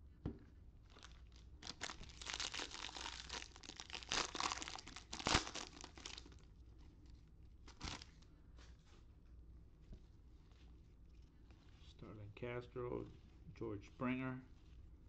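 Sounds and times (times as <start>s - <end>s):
foil wrapper crinkling and tearing: 0.9s - 6.5s, 7.7s - 8.1s.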